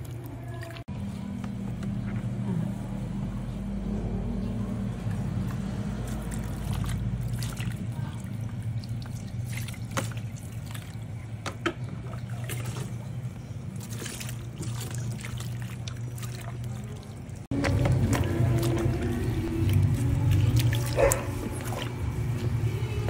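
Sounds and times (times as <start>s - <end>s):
steady low hum: 0.0s - 23.0s
water splashing in plastic basin: 5.3s - 22.5s.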